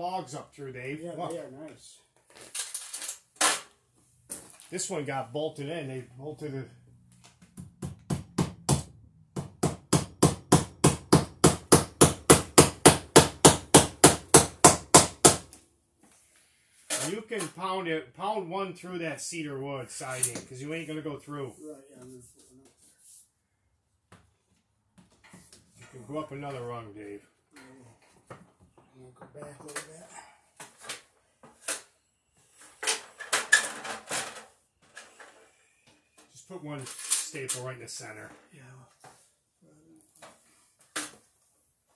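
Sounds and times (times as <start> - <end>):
hammer striking wood: 7.6 - 15.5
tools knocking and clattering: 32.7 - 35.3.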